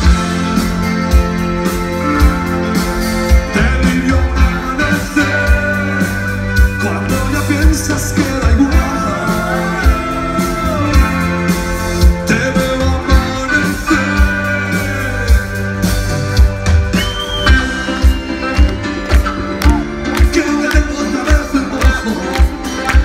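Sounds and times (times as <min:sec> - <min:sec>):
rock band playing live: 0:00.0 - 0:23.0
person singing: 0:03.3 - 0:16.0, 0:19.5 - 0:23.0.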